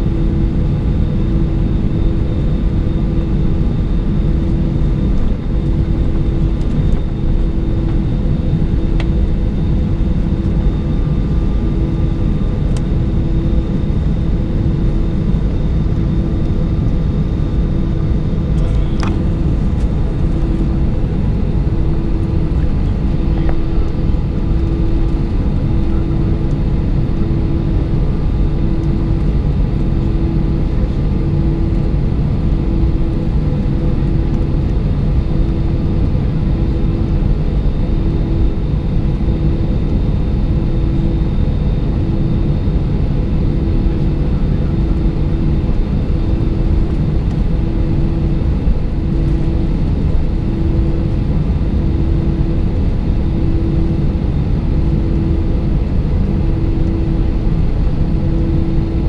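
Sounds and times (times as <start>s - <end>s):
pulsing low hum: 0.0s - 59.0s
jet engines idling: 3.6s - 32.4s.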